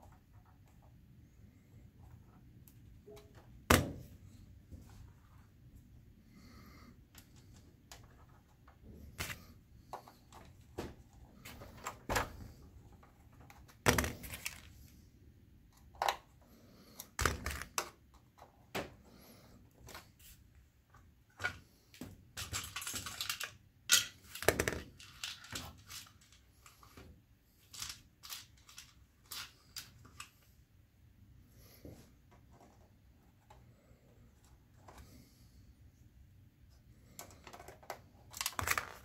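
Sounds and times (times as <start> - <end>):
plastic and metal parts clicking: 22.4 - 27.0, 27.6 - 30.4, 37.1 - 39.0.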